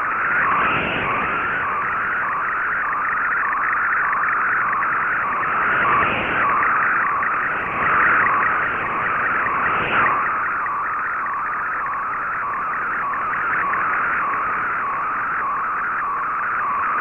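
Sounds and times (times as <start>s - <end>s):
wavering digital data signal: 0.0s - 17.0s.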